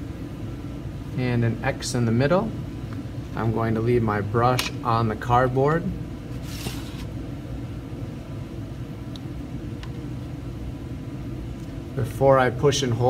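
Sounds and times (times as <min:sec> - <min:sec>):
low background hum: 0:00.0 - 0:13.0
paper rustling: 0:06.4 - 0:07.1.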